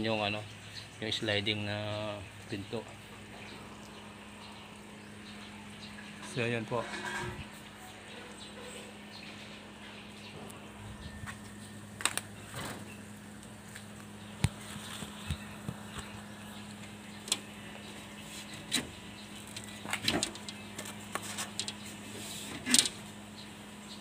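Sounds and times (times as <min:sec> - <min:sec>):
steady low hum: 0:00.0 - 0:24.0
door frame clatter: 0:20.0 - 0:20.6.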